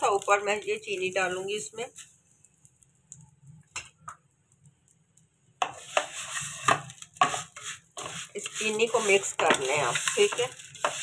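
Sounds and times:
spatula scraping metal pot: 0:05.6 - 0:11.0.

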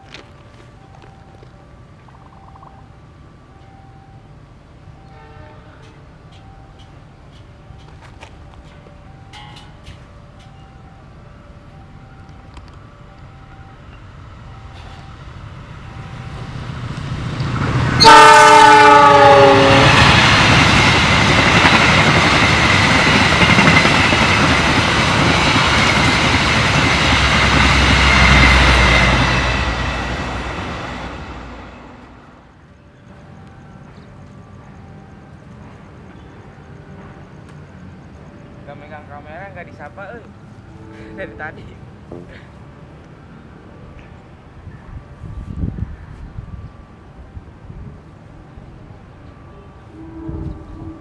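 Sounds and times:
train passing at speed: 0:00.0 - 0:51.0
locomotive horn blast: 0:05.0 - 0:06.0, 0:17.9 - 0:20.3, 0:49.5 - 0:51.0.

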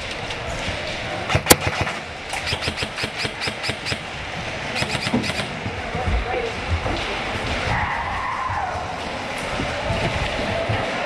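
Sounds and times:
airsoft gun shots: 0:01.3 - 0:04.1, 0:04.8 - 0:05.6.

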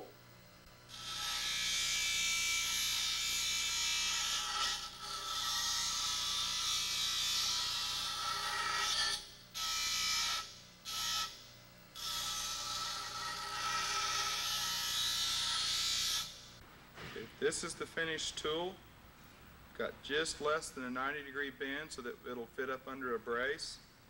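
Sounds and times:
bench grinder grinding steel: 0:00.9 - 0:11.3, 0:12.0 - 0:16.3.

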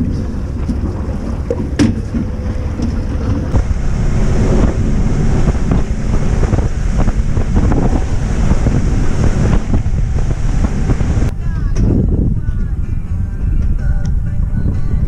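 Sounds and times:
water rushing: 0:00.0 - 0:11.3
boat motor: 0:00.0 - 0:11.4
wind buffeting microphone: 0:00.0 - 0:15.0.

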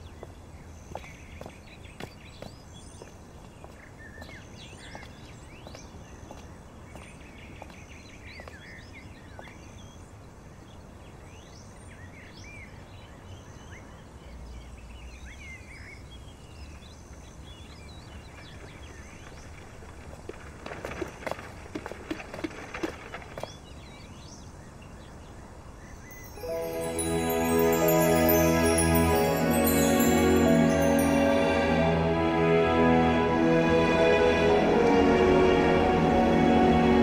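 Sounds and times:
small birds chirping: 0:00.0 - 0:20.3
thin high note: 0:26.2 - 0:32.5.

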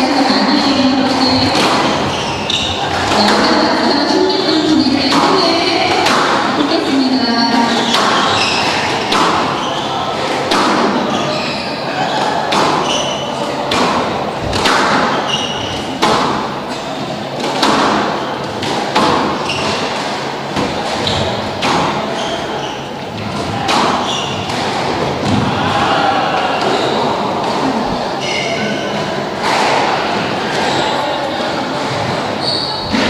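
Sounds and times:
shoes squeaking on wooden floor: 0:00.1 - 0:06.4, 0:07.4 - 0:13.4, 0:14.4 - 0:16.0, 0:19.1 - 0:20.0, 0:20.6 - 0:25.4, 0:31.9 - 0:33.0
squash racket hitting ball: 0:00.1 - 0:25.7, 0:31.8 - 0:33.0
ball hitting walls: 0:01.0 - 0:03.7, 0:05.1 - 0:06.6, 0:07.7 - 0:11.2, 0:12.4 - 0:16.6, 0:17.4 - 0:22.4, 0:23.2 - 0:25.5.

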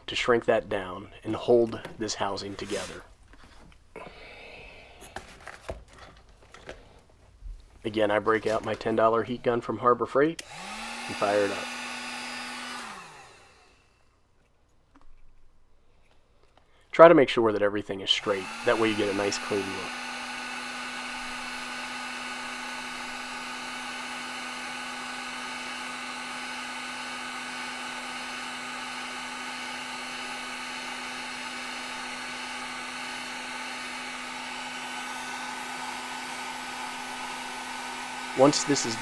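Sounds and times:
heat gun fan humming: 0:08.0 - 0:14.2, 0:18.0 - 0:39.0.

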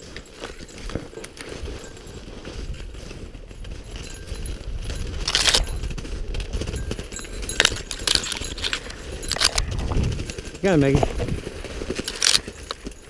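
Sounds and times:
footsteps crunching in snow: 0:00.0 - 0:13.0
branches scraping against clothing: 0:07.5 - 0:13.0.

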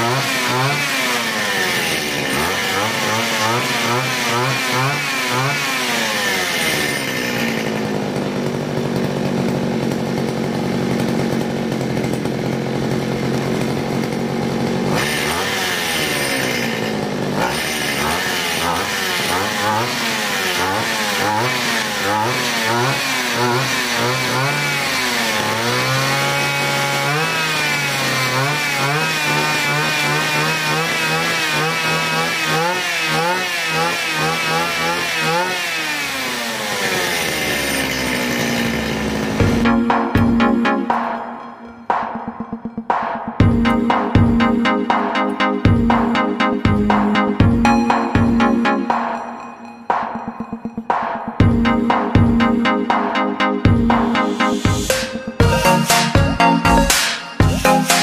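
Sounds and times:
grass trimmer engine revving: 0:00.0 - 0:41.1.

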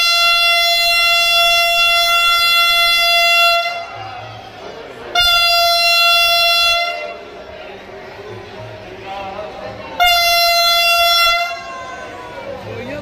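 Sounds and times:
train horn blasts: 0:00.0 - 0:04.3, 0:05.1 - 0:07.3, 0:10.0 - 0:12.1.

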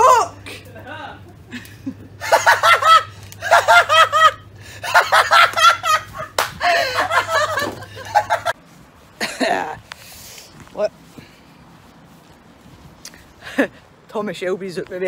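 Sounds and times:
people laughing hard: 0:00.5 - 0:08.6.

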